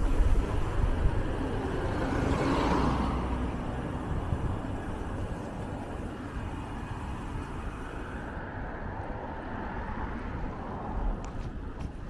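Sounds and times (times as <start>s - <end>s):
high hiss: 0.0s - 8.4s
traffic rumble: 0.0s - 12.0s
wind: 0.0s - 12.0s.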